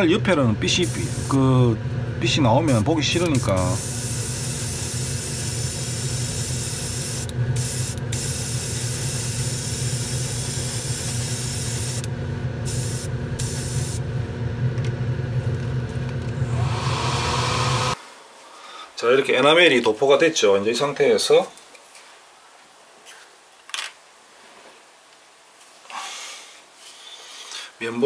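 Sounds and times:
airbrush spraying hiss: 0.8 - 1.4, 3.4 - 12.1, 12.7 - 14.0.

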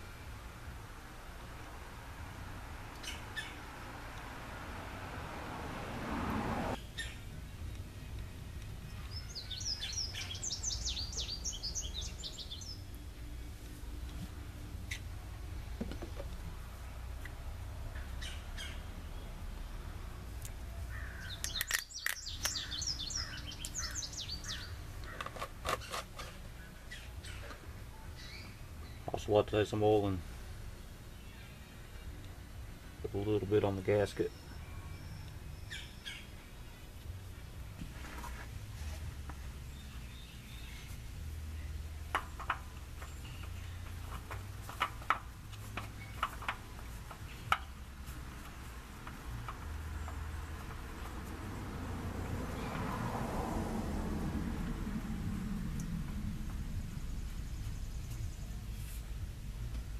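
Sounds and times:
low steady hum: 0.0 - 25.1
songbird chirping: 0.0 - 53.8, 54.6 - 59.9.

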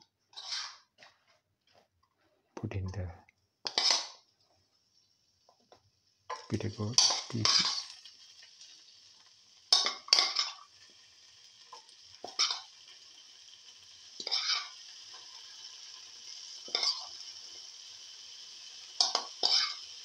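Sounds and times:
food sizzling in oil: 0.3 - 0.9, 3.6 - 20.0
metal spoon scraping a pan: 0.3 - 1.4, 3.6 - 4.2, 6.3 - 8.0, 9.7 - 10.7, 11.7 - 12.7, 14.2 - 15.7, 16.6 - 17.3, 19.0 - 19.9.

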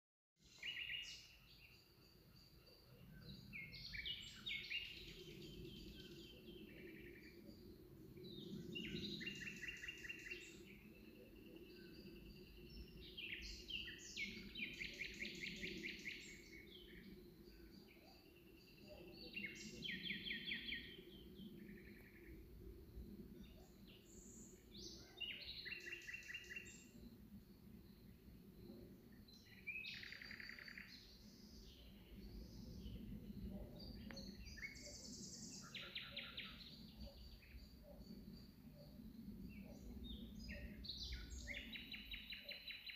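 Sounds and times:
songbirds singing: 0.4 - 42.9
faint low rumble: 30.9 - 42.1.

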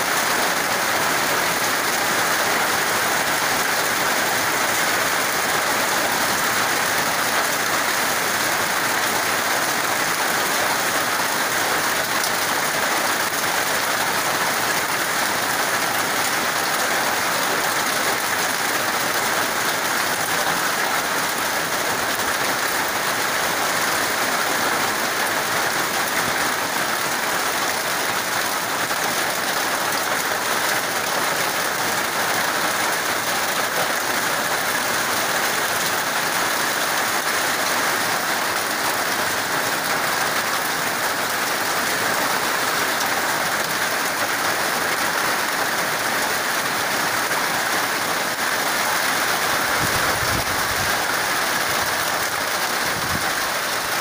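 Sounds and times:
heavy rain on metal roof: 0.0 - 54.0.

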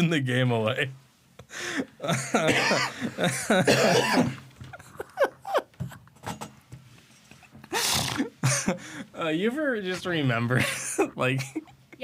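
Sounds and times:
people laughing: 2.0 - 3.8, 4.6 - 6.0, 10.5 - 11.7.

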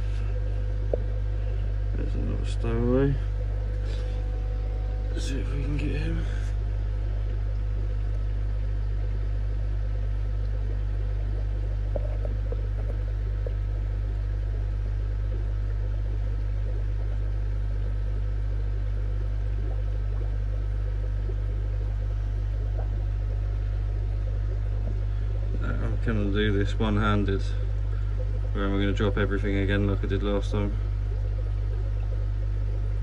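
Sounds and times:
air pump hum: 0.0 - 33.0.

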